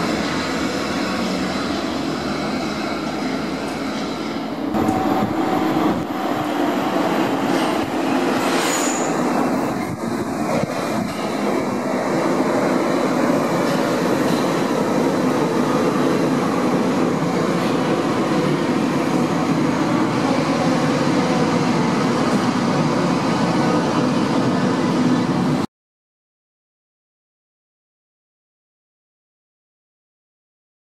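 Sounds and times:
train wheels rumbling on rails: 0.0 - 25.6
high-pitched tone: 4.7 - 9.2.

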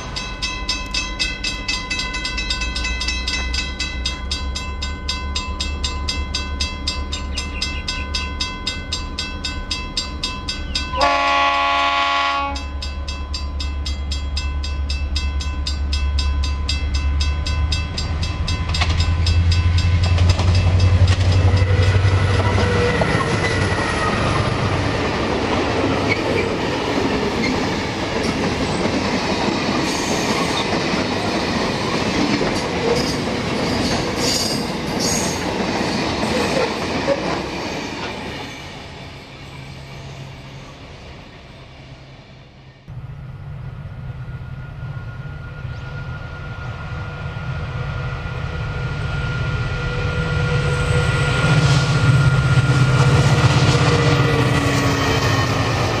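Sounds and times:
locomotive engine drone: 0.0 - 28.9, 38.0 - 56.0
train horn blast: 10.9 - 12.8
wheels clicking over rail joints: 16.7 - 38.3.

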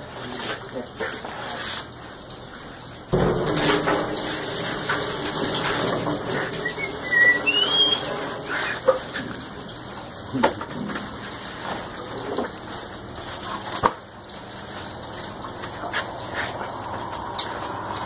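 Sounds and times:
running water rushing: 0.0 - 18.0.

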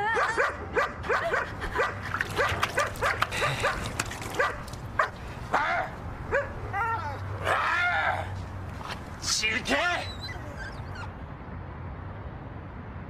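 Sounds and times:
dog barking: 0.2 - 6.6.

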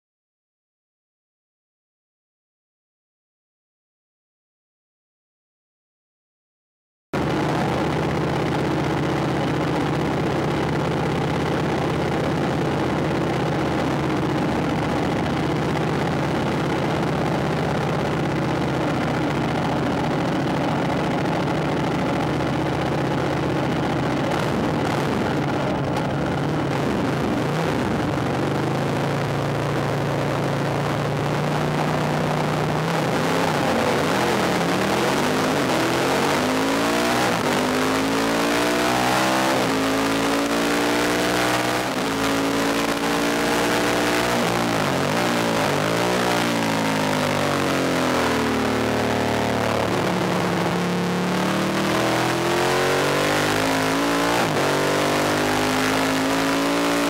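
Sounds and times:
racing motorcycle engine: 7.2 - 57.0.

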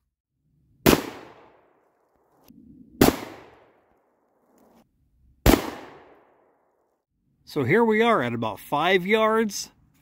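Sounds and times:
shotgun blasts: 0.8 - 1.8, 3.0 - 3.8, 5.4 - 6.4.

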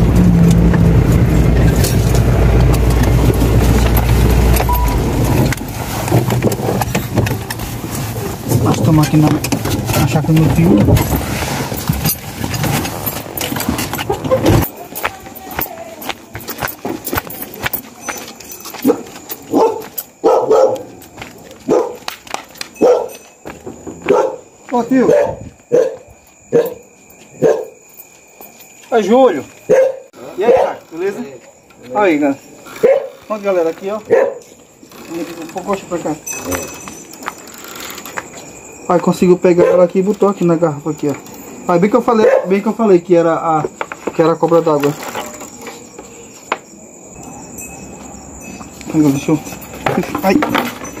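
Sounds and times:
car engine and tyre rumble: 0.0 - 14.7
dog barking: 18.8 - 21.0, 21.6 - 22.1, 22.8 - 23.2, 24.0 - 26.8, 27.4 - 27.8, 29.7 - 30.8, 32.8 - 33.2, 34.1 - 34.5, 39.6 - 39.9, 42.2 - 42.6.

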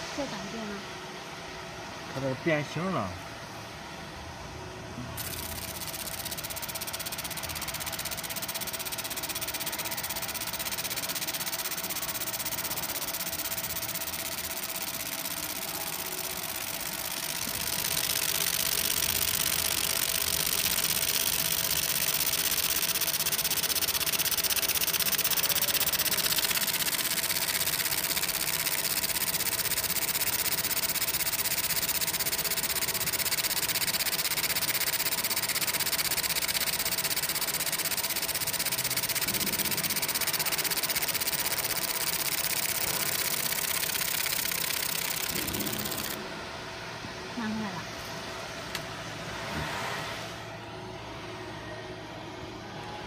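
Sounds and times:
laser marking machine hiss: 5.2 - 46.2.

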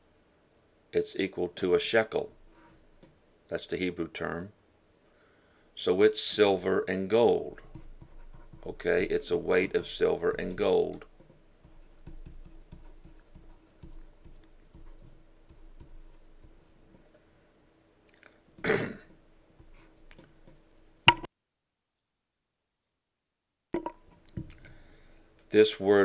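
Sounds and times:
marker scratching on whiteboard: 2.2 - 2.9, 6.4 - 17.2, 19.5 - 20.7
low steady hum: 5.5 - 21.3.

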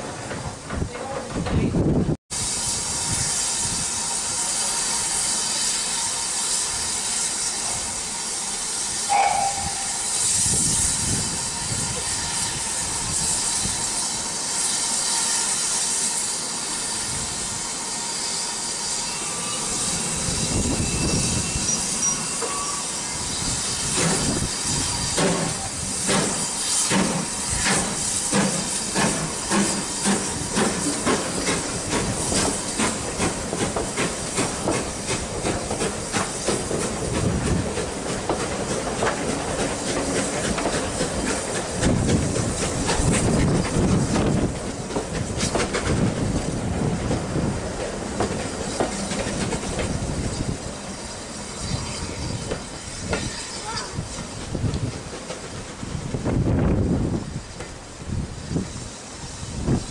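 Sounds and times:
steam hissing: 2.3 - 59.9
steam locomotive chuffing: 2.3 - 59.9
short high whistle note: 9.0 - 10.6.

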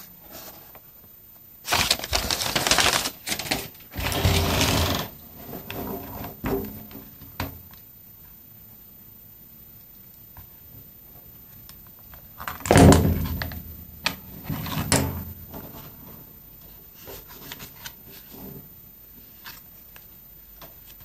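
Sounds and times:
paper rustling and crinkling: 1.6 - 6.4, 17.0 - 18.4.

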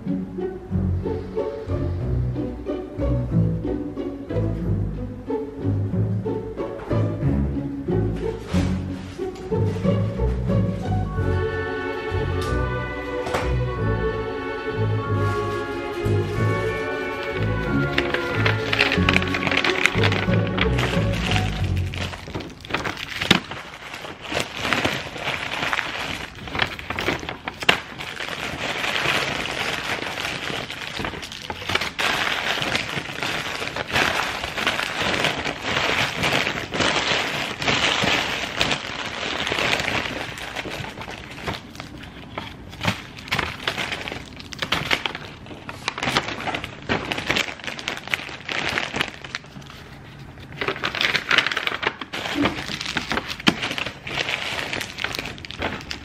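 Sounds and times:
paper bags rustling: 8.0 - 56.0
plastic bag crinkling: 15.2 - 56.0.

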